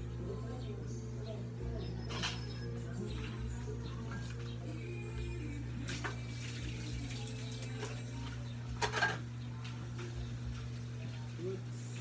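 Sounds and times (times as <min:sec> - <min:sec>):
steady low hum: 0:00.0 - 0:12.0
water splashing in plastic basins: 0:05.8 - 0:08.4.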